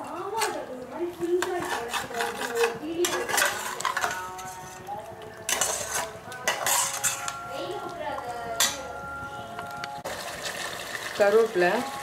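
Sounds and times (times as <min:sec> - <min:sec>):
spoon scraping a cooking pot: 0:01.2 - 0:07.8.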